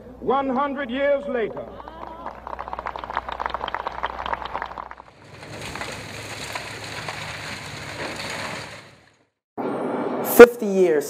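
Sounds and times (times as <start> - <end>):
crowd applause: 1.6 - 9.0.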